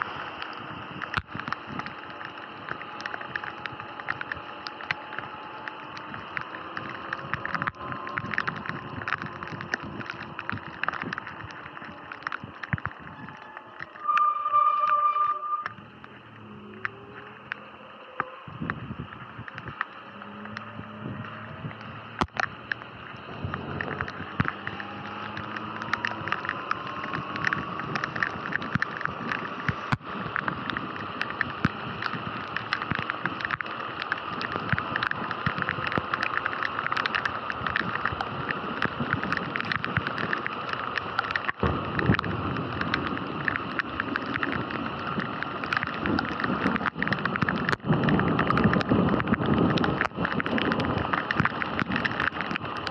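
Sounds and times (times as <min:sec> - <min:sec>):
electric motorbike motor whining: 0:00.0 - 0:14.4
raindrops hitting camera: 0:00.0 - 0:52.9
tyres hissing on wet road: 0:00.0 - 0:52.9
wind buffeting: 0:00.0 - 0:52.9.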